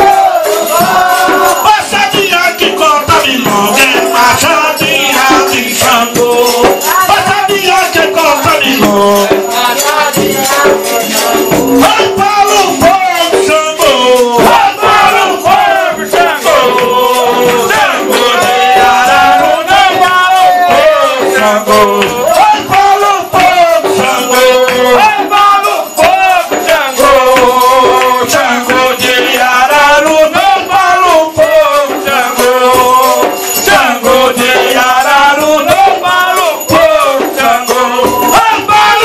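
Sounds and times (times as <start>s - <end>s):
voices chanting into a microphone: 0.0s - 39.0s
rattles shaking: 0.4s - 39.0s.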